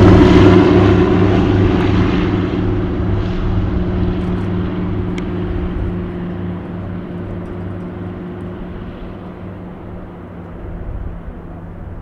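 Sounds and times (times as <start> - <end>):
propeller aircraft engines climbing: 0.0 - 12.0.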